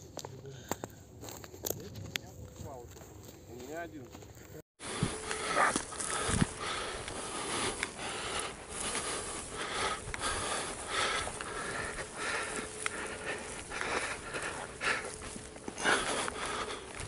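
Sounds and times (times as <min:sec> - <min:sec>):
footsteps through dry grass: 0:00.0 - 0:17.0
person breathing heavily: 0:04.8 - 0:17.0.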